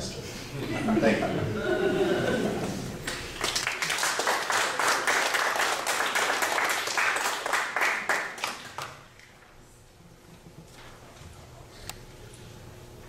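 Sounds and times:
audience applauding: 3.0 - 9.3.

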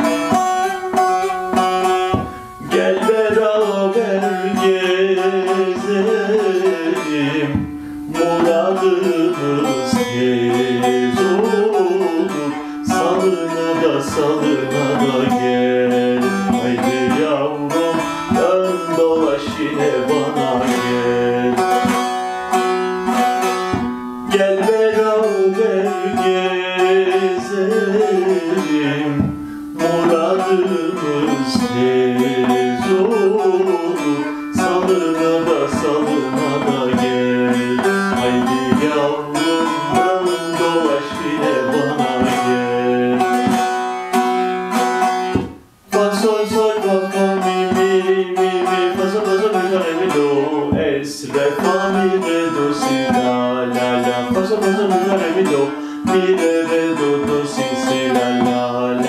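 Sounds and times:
plucked long-necked lute melody: 0.0 - 59.0.

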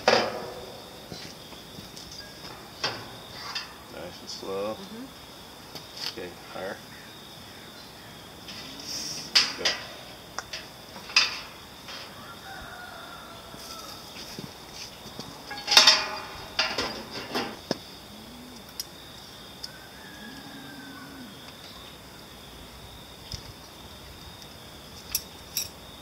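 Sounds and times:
metal hooks clinking and scraping: 15.5 - 17.6, 25.0 - 25.8.

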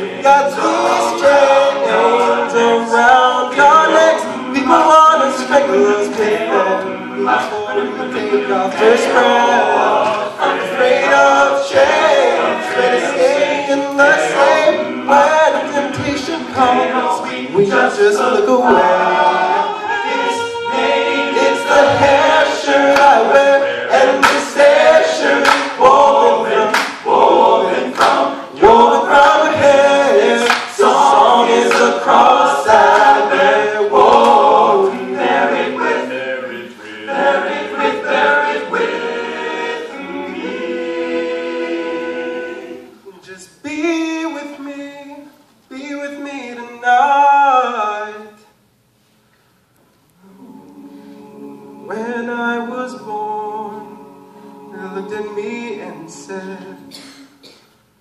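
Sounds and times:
men's backing vocals: 0.0 - 44.7.

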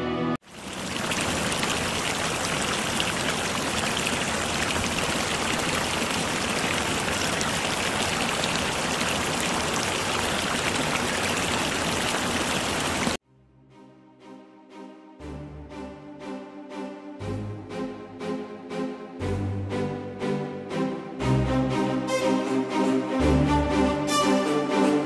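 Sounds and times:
rushing water: 0.4 - 13.2.

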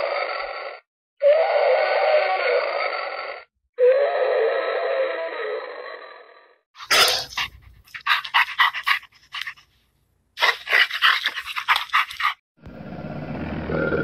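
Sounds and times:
dog panting: 7.2 - 9.8, 10.4 - 12.4.

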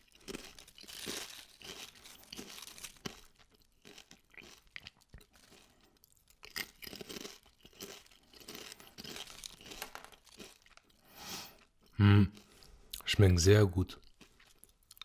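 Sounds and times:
potato chips crackling in hand: 0.0 - 11.1.

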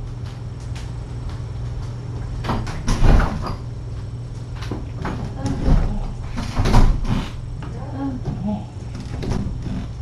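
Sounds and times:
steady low hum: 0.0 - 10.0
knocks and thumps: 4.7 - 10.0.

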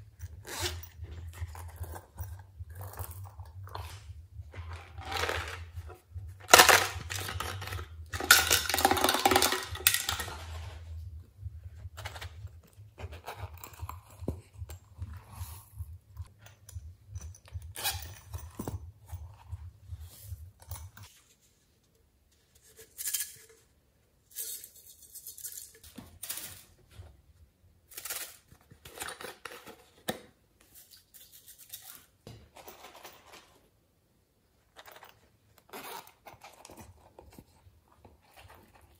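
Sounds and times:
zip pouch opening: 0.0 - 5.8
low steady hum: 0.0 - 29.9
plastic bottle shaking: 3.5 - 11.0.

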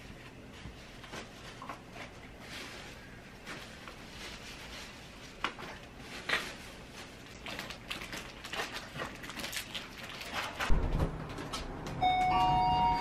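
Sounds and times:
plastic snack packages rustling: 0.5 - 10.7.

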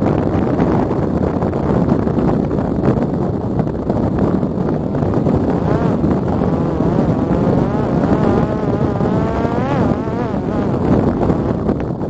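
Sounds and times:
wind rumble: 0.0 - 12.0
drone propeller motor whining: 5.4 - 11.8.

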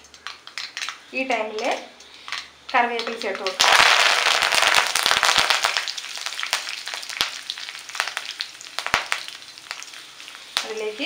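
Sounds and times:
leaves sizzling in hot oil: 0.0 - 11.0
oil popping and crackling: 0.0 - 11.0.

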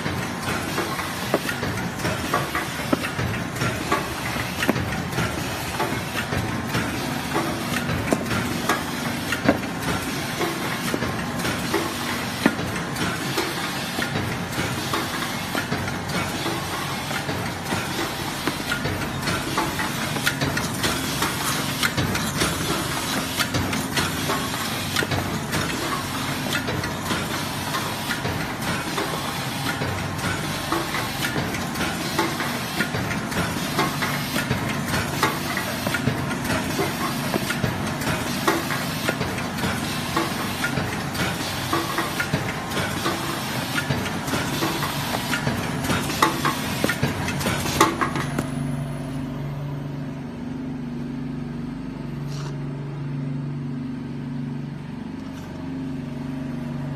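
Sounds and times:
wrapping machine clattering: 0.0 - 48.5.

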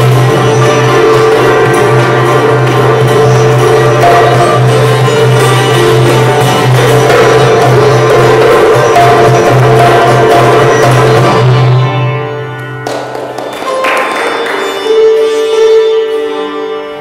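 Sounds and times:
sitar koto and hand drum playing: 0.0 - 17.0
sharp drum strikes: 1.4 - 11.7.

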